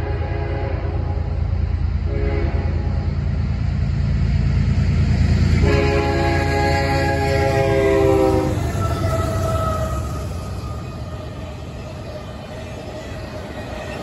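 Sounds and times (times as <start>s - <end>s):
locomotive air horn: 0.0s - 1.3s, 2.1s - 3.0s, 5.6s - 10.8s
freight train rumbling past: 0.0s - 14.0s.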